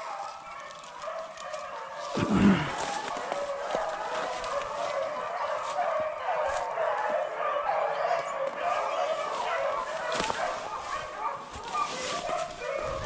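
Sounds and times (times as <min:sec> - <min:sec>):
dry leaves crackling underfoot: 0:00.0 - 0:07.2, 0:08.4 - 0:13.0
pack of dogs baying: 0:00.0 - 0:13.0.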